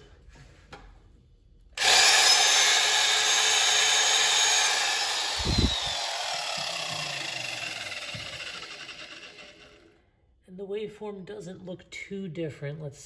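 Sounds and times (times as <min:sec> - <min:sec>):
electric drill whining: 0:01.8 - 0:09.9.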